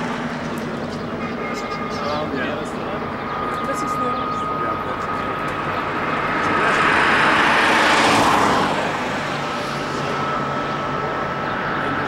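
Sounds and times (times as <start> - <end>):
vehicle passing by: 5.6 - 11.5.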